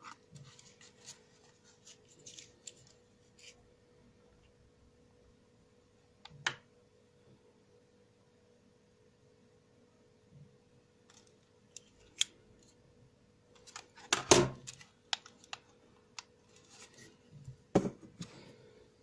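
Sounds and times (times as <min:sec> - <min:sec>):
objects knocking on table: 0:17.7 - 0:18.1.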